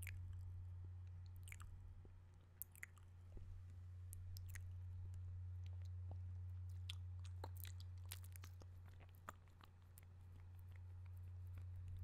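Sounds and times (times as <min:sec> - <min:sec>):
wet mouth sounds: 0:00.0 - 0:00.3, 0:01.4 - 0:01.7, 0:06.7 - 0:12.0
steady low hum: 0:00.0 - 0:12.0.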